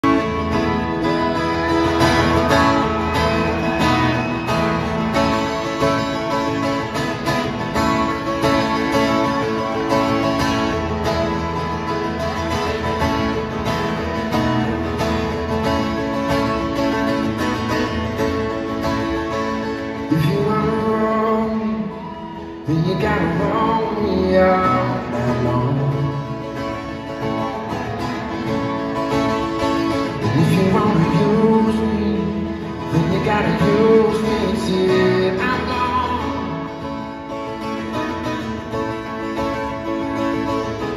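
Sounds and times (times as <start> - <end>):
acoustic guitar over pa: 0.0 - 40.9
man singing: 19.9 - 26.6, 29.9 - 37.1.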